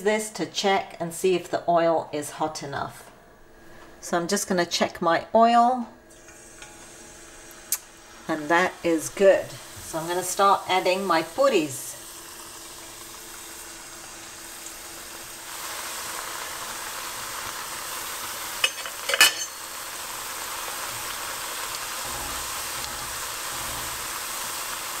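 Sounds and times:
dough sizzling in hot oil: 6.1 - 25.0.

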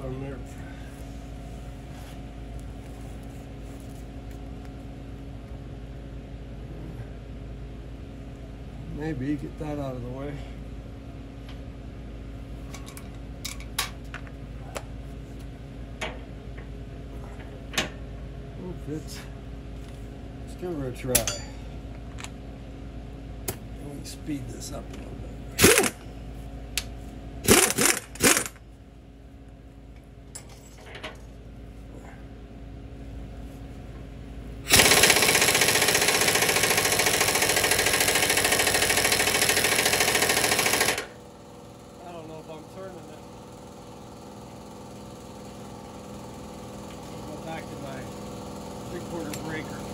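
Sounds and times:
steady low hum: 0.0 - 49.9
pneumatic impact wrench hammering: 25.6 - 26.0, 27.4 - 28.6, 34.6 - 41.2.

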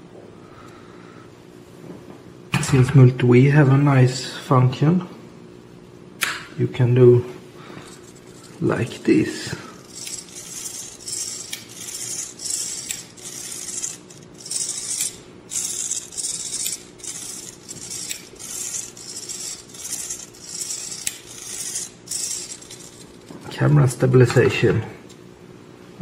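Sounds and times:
servo whirring in raspy bursts: 9.8 - 23.3.

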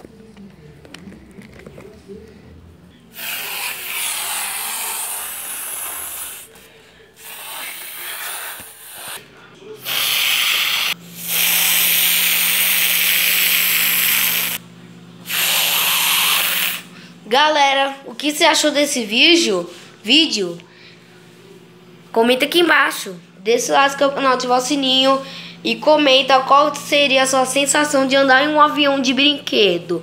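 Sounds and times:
toy jet engine whoosh: 3.2 - 6.5, 9.8 - 14.6, 15.3 - 16.9
low steady hum: 16.8 - 30.0.

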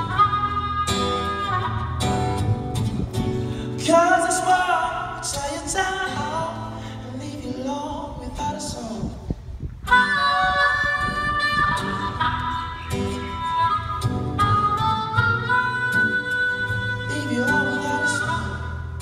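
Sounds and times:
harmonica held notes: 0.0 - 3.8, 10.0 - 19.0
strummed acoustic guitar: 0.0 - 7.9, 9.9 - 19.0
man singing: 3.6 - 13.7, 15.4 - 19.0.

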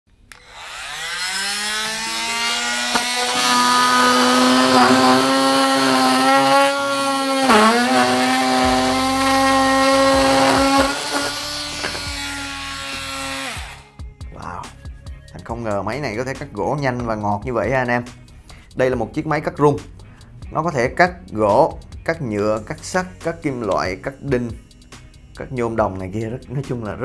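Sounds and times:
blade cutting into wood: 0.2 - 13.9
oscillating multi-tool buzzing: 0.2 - 14.0.

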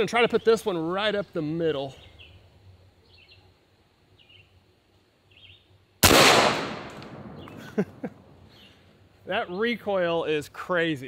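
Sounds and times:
faint bird chirps: 0.2 - 4.6, 5.3 - 5.7, 8.4 - 9.8
air rifle shot: 6.0 - 8.0.

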